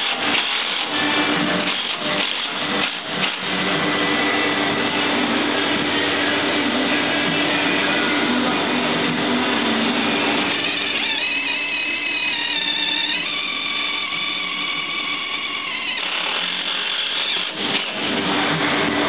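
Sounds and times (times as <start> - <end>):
cordless drill motor whine: 10.0 - 17.9.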